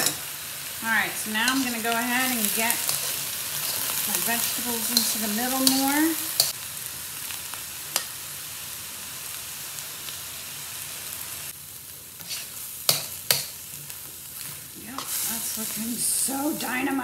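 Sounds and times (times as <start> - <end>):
stir-fry sizzling in a wok: 0.0 - 17.0
metal tongs clicking on pan: 1.4 - 1.9, 4.8 - 6.6, 7.9 - 8.1, 12.9 - 13.6.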